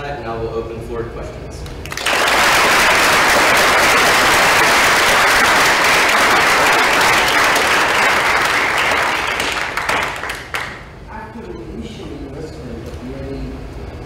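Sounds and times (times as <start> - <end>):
audience applauding: 1.8 - 11.0.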